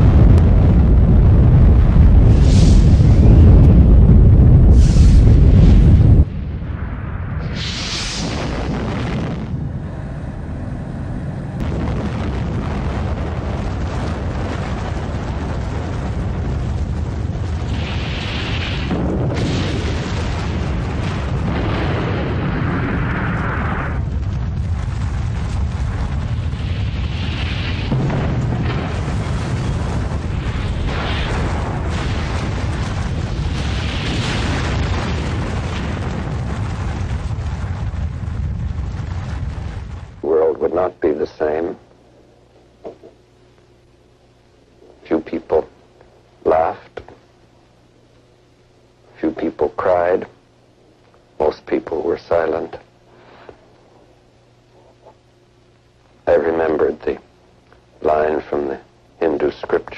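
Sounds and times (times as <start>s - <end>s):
deep explosion rumble: 0.0s - 41.8s
rushing swells: 4.6s - 12.7s.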